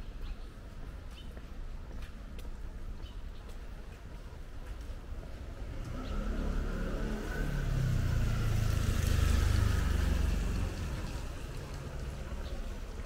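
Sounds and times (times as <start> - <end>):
vehicle engine passing: 5.4 - 13.0
tyre hiss on wet street: 5.6 - 13.0.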